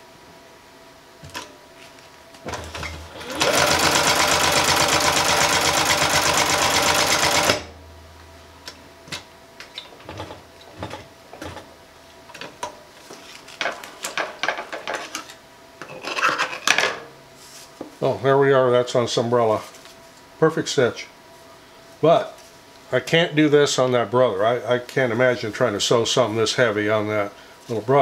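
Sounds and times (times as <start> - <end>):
sewing machine motor hum: 2.5 - 7.7
sewing machine stitching: 2.5 - 7.7.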